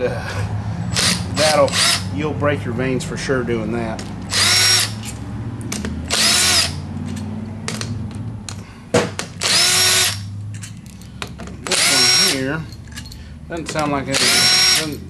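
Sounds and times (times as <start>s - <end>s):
impact driver whirring: 0.9s - 2.2s, 4.2s - 7.0s, 8.9s - 10.3s, 11.7s - 12.5s, 14.1s - 15.0s.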